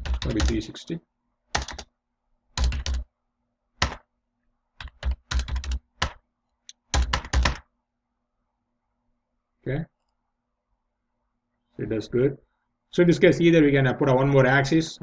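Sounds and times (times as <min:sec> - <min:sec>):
computer keyboard typing: 0:00.0 - 0:00.6, 0:01.5 - 0:01.9, 0:02.6 - 0:03.1, 0:03.8 - 0:04.1, 0:04.8 - 0:07.7.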